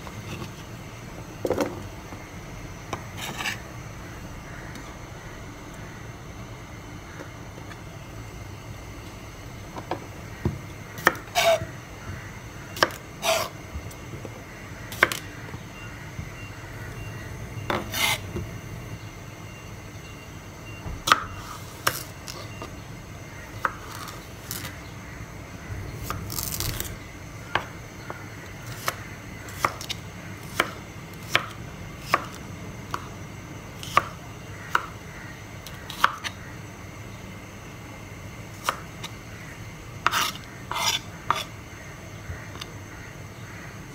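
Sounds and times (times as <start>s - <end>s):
knife chopping on plastic board: 9.8s - 11.7s.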